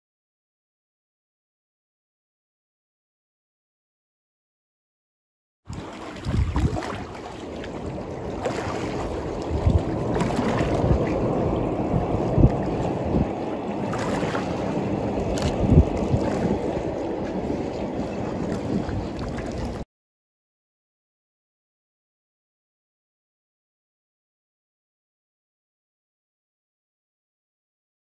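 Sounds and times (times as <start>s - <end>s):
river water lapping: 5.7s - 19.8s
wind buffeting microphone: 5.7s - 19.8s.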